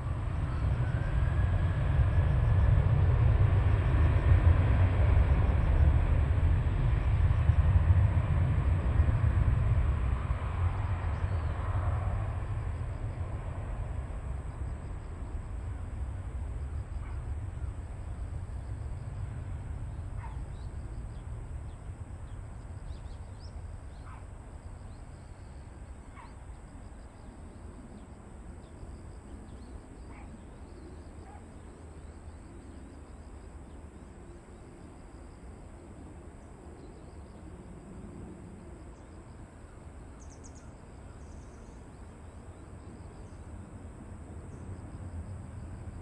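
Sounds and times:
distant jet engines rumbling: 0.0s - 46.0s
high insect trill: 36.8s - 46.0s
bird chirps: 40.2s - 41.8s.

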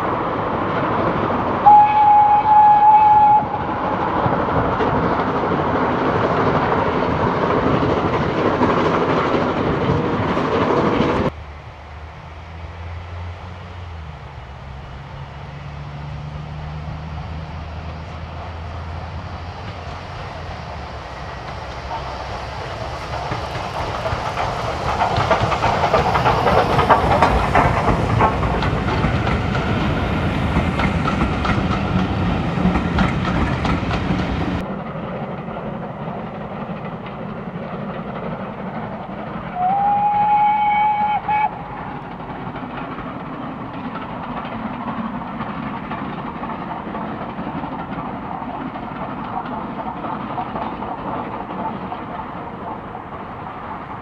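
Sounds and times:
steam locomotive exhaust: 0.0s - 54.0s
train wheels clattering: 0.0s - 54.0s
steam train whistle: 1.6s - 3.9s, 39.5s - 42.0s.

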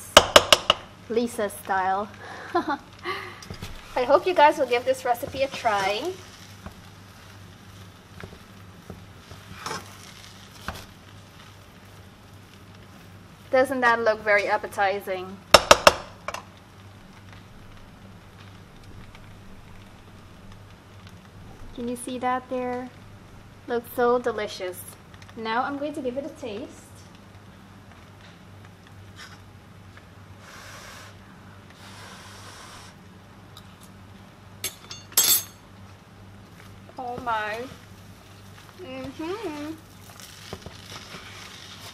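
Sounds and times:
utensil scraping fried rice in pan: 3.6s - 13.3s, 37.7s - 41.9s.

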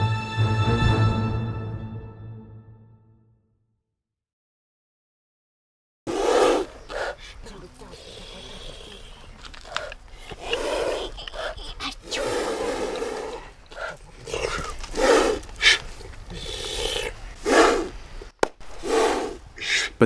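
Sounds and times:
rough vocal bursts: 14.3s - 18.0s
man blowing into hands: 18.6s - 20.0s.

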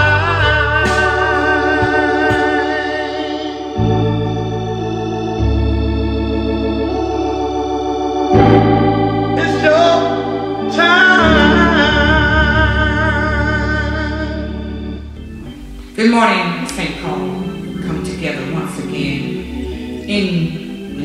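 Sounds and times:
man singing: 0.0s - 4.0s, 9.4s - 14.7s
organ holding sustained chords: 0.0s - 21.0s.

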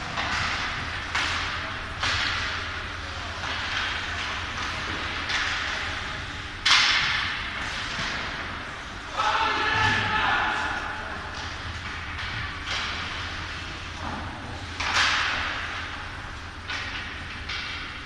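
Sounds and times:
hockey stick hitting puck: 0.0s - 6.0s, 6.6s - 8.6s, 11.3s - 16.1s, 16.7s - 18.0s
puck hitting boards: 0.0s - 6.0s, 6.6s - 8.6s, 11.3s - 16.1s, 16.7s - 18.0s.

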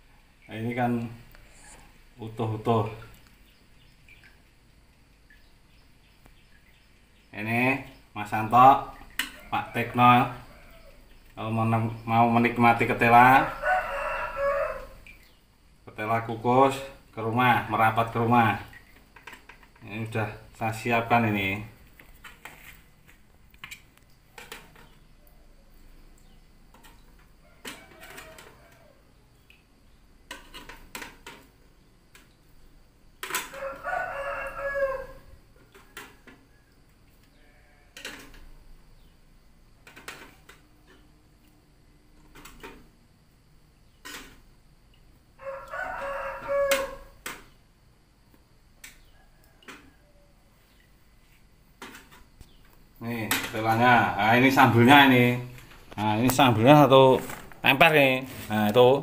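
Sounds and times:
rooster crowing: 13.2s - 15.1s, 27.4s - 29.1s, 33.4s - 35.5s, 45.4s - 47.2s.

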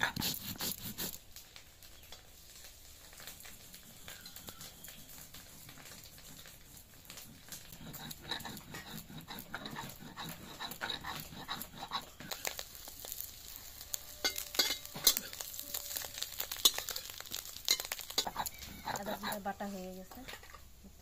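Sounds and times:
oil sizzling: 0.0s - 21.0s
grinding stone scraping: 7.1s - 13.2s, 14.2s - 19.6s
metal spatula scraping a pan: 7.1s - 20.6s.

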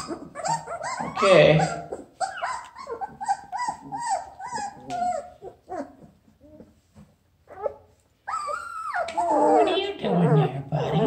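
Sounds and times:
puppies whimpering and whining: 0.0s - 11.0s.

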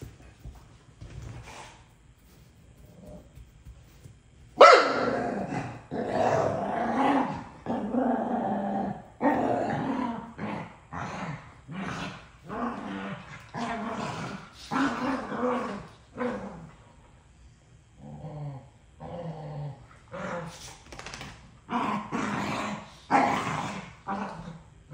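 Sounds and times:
dog barking: 4.6s - 5.1s
dogs growling: 4.9s - 16.9s, 18.0s - 20.8s, 21.7s - 24.9s.

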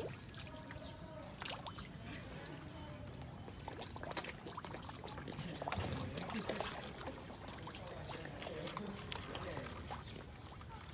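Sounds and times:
fish splashing at water surface: 3.6s - 10.8s.

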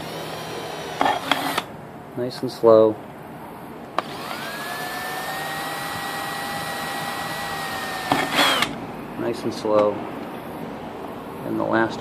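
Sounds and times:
drill motor whine: 0.0s - 1.7s, 4.0s - 8.8s
drill trigger click: 7.3s - 8.8s.

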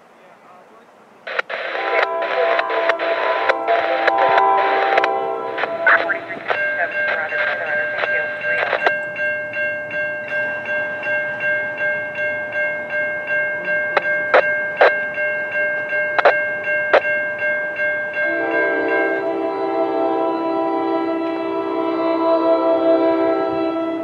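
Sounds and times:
train horn chord: 1.5s - 8.8s, 18.2s - 24.0s
crossing bell ringing: 1.5s - 24.0s.

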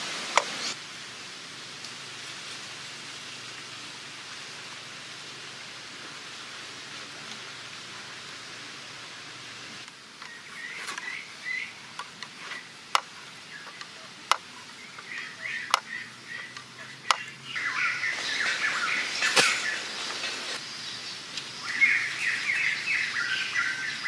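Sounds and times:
steady hiss: 0.0s - 24.0s
birds chirping: 10.2s - 24.0s.

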